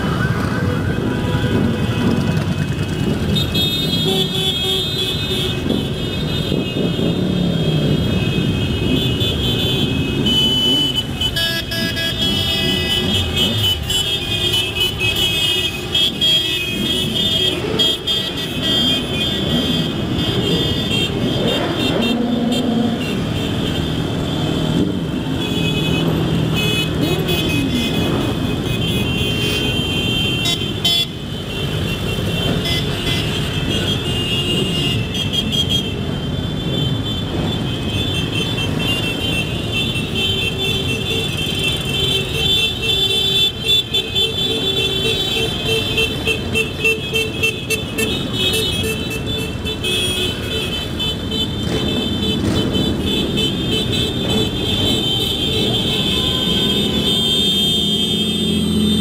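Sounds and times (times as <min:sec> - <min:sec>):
horns sounding: 0:00.3 - 0:59.0.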